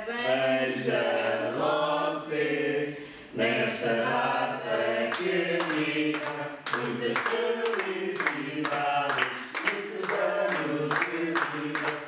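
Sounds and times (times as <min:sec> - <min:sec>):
group of people singing: 0:00.0 - 0:12.0
hand claps: 0:05.1 - 0:12.0.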